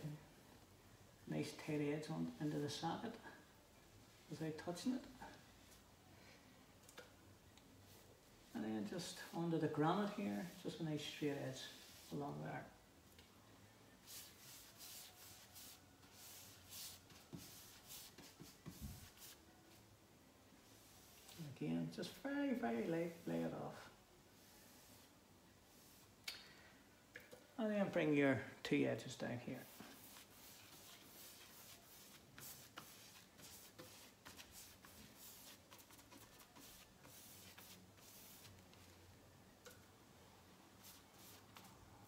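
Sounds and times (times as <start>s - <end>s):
paintbrush swishing: 8.9s - 12.7s, 14.0s - 19.8s, 20.6s - 26.2s, 29.5s - 39.0s, 40.8s - 41.8s.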